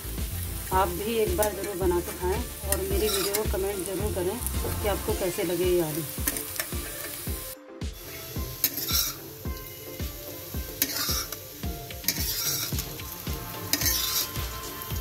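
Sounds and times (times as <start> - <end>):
potatoes sizzling in oil: 0.0 - 15.0
metal spatula scraping a pan: 2.7 - 3.4, 8.6 - 9.2, 10.8 - 11.4, 12.1 - 15.0.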